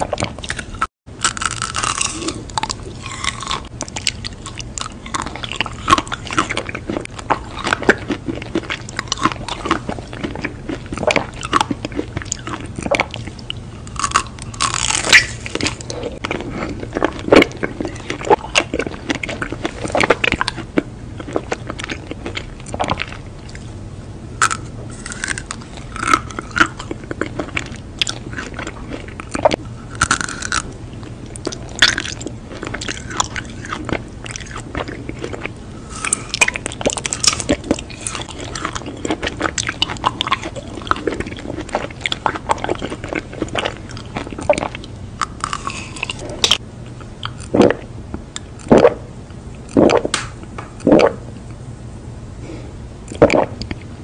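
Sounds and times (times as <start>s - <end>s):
biting and chewing ice cream bar: 0.0s - 23.7s, 24.4s - 48.9s
person gulping a drink: 47.3s - 47.9s, 48.6s - 49.0s, 49.7s - 50.2s, 50.8s - 51.2s, 53.1s - 53.9s.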